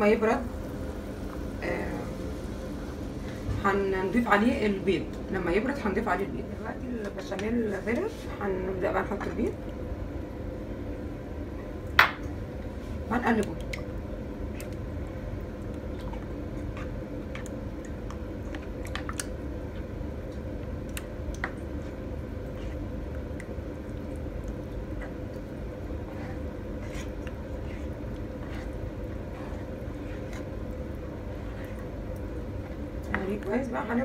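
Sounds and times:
steady low hum: 0.0 - 34.0
spatula squishing thick sauce: 21.1 - 33.5.

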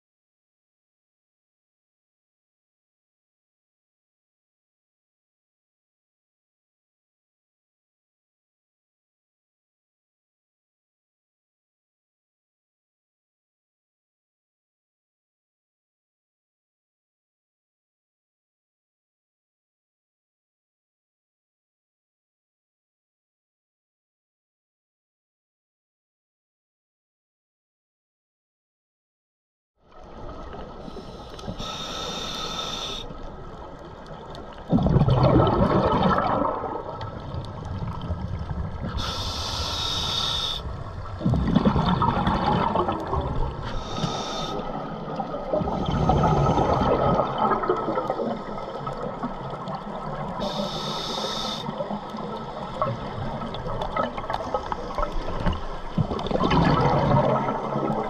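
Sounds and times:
regulator inhale hiss: 30.8 - 33.3, 38.9 - 40.9, 43.6 - 45.0, 50.3 - 53.2
exhaled bubbles rushing: 34.2 - 39.0, 40.9 - 43.7, 44.6 - 50.4, 51.7 - 58.0.

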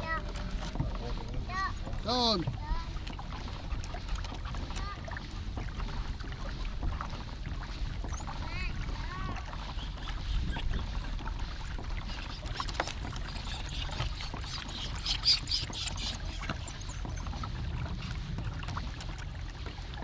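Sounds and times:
water splashing and trickling: 0.0 - 20.0
steady low rumble: 5.0 - 20.0.

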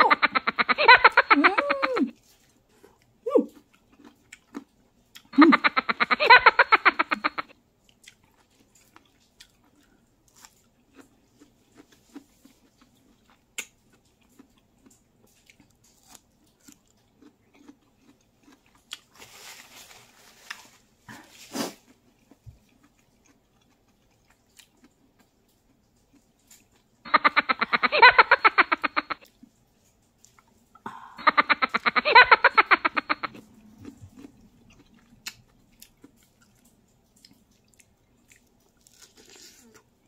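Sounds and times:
chewing and biting fruit: 2.1 - 19.7, 20.4 - 27.0, 33.0 - 40.0.

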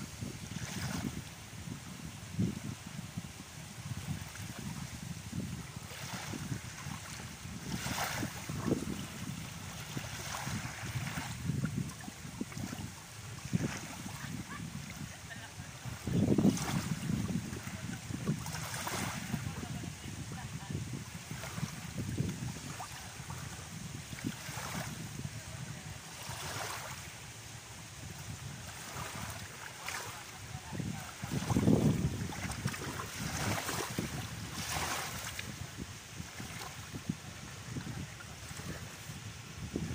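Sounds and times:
small waves lapping on shore: 0.0 - 39.9
wind buffeting microphone: 0.0 - 39.9.

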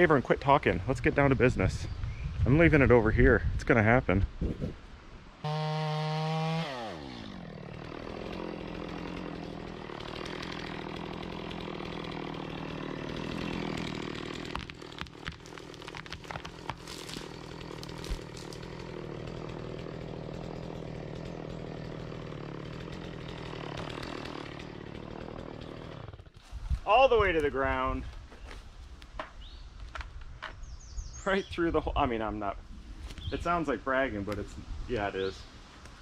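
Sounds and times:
chainsaw running: 5.4 - 26.4
tree cracking and falling: 5.6 - 27.7.

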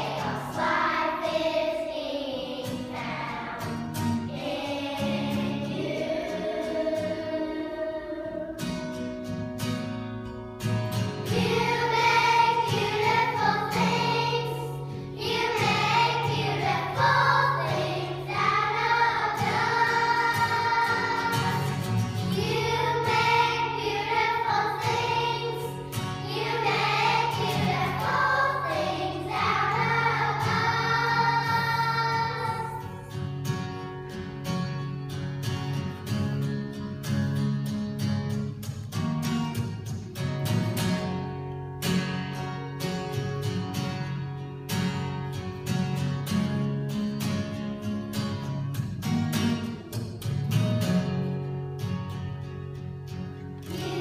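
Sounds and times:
children's choir singing a hymn: 0.0 - 9.4, 11.2 - 33.8, 53.6 - 54.0
strummed acoustic guitar: 0.0 - 54.0.

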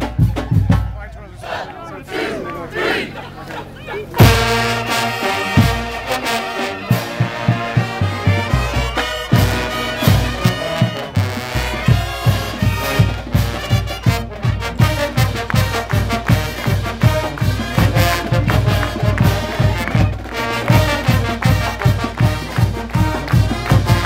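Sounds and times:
steady drum beat: 0.0 - 3.2, 4.0 - 24.0
marching band playing: 0.0 - 24.0
sousaphones: 0.3 - 14.6
trumpets: 4.0 - 24.0
loud drum hit: 4.2 - 6.3.

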